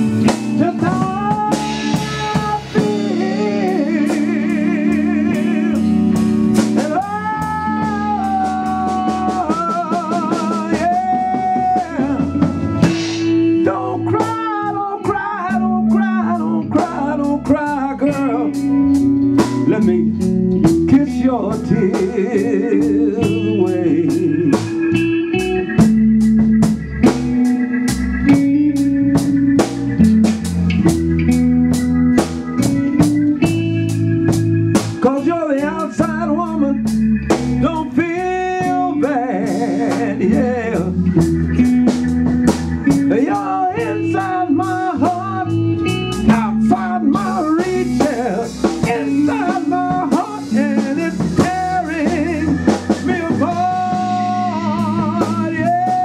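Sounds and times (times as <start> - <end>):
bass: 0.0 - 56.0
drum-kit beat: 0.0 - 56.0
electric guitar lead: 0.0 - 56.0.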